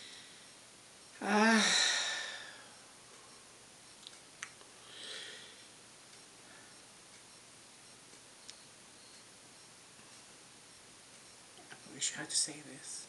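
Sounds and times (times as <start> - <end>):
woman sighing: 1.2 - 2.8
faint clicks: 3.9 - 4.7
soft breath: 4.8 - 5.8.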